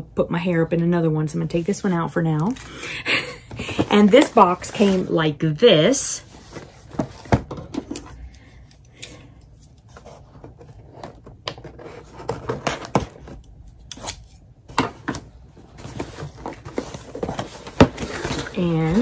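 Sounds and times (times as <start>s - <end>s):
cardboard box handled: 15.8s - 19.0s.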